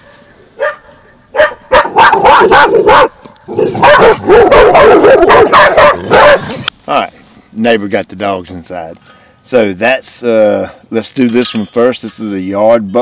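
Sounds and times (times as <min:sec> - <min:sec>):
dog barking: 0:00.6 - 0:06.6.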